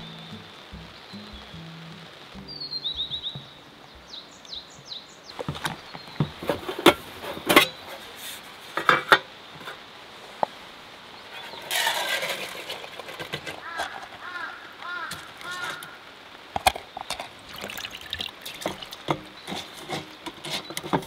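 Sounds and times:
bird chirps: 0.0s - 8.0s
dry rice poured into metal tin: 11.4s - 13.7s
metal tin and lid clinking: 11.4s - 14.2s.

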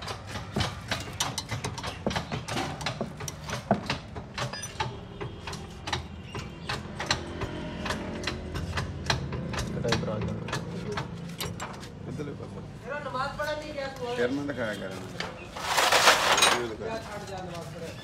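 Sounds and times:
hand tools clicking on brake parts: 0.0s - 11.9s.

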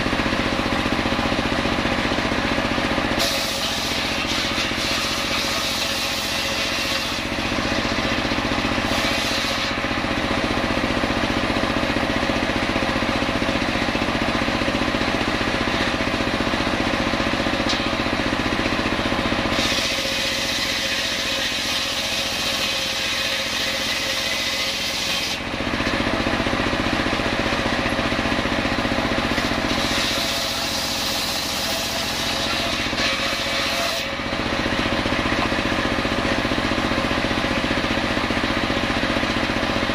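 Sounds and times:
saw blade ripping wood: 3.1s - 10.2s, 19.4s - 26.1s, 29.1s - 35.8s.

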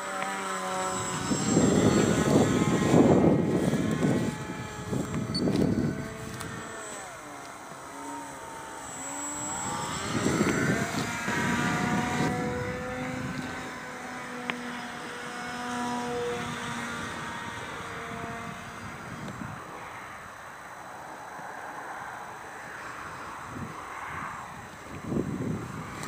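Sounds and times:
model airplane motor drone: 0.0s - 26.0s
wind noise on microphone: 0.6s - 20.4s, 22.9s - 26.0s.

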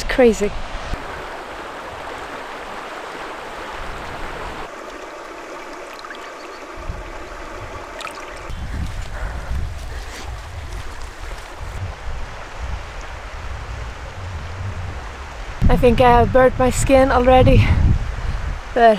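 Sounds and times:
wind rumble on microphone: 0.0s - 4.7s, 6.5s - 18.9s
stream rushing over stones: 0.0s - 9.0s
water babbling: 0.0s - 9.4s.

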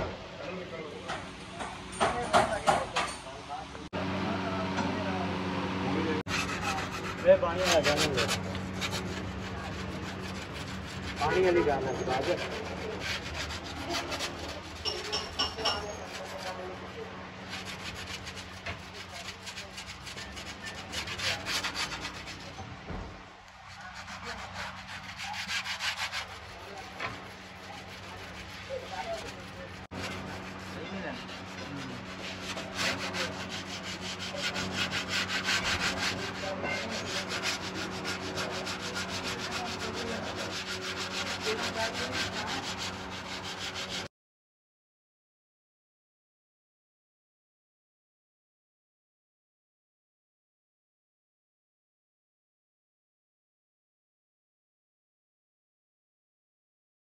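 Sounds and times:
metal scraper scraping steel: 6.3s - 22.6s, 23.6s - 44.1s.

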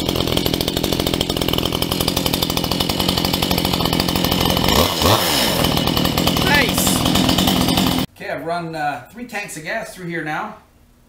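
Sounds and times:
chainsaw engine idling: 0.0s - 8.1s.

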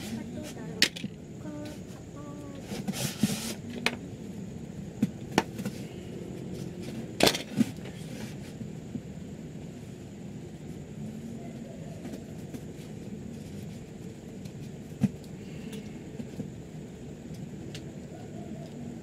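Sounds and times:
background hum: 0.0s - 19.0s
tape pulled off roll: 2.6s - 3.9s.

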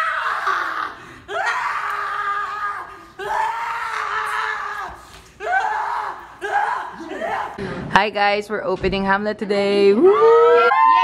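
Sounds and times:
person screaming: 0.0s - 7.6s.

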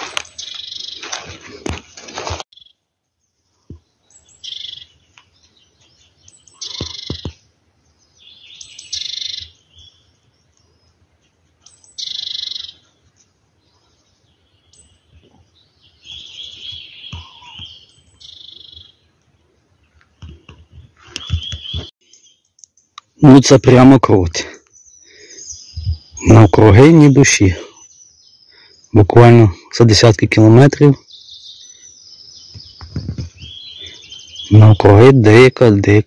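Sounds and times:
scuffling crunching noise: 0.0s - 2.5s
songbirds singing: 0.0s - 36.0s.

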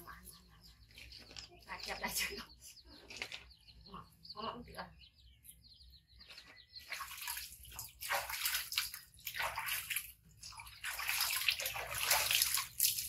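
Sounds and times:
water splashing in a washtub: 6.8s - 13.0s.

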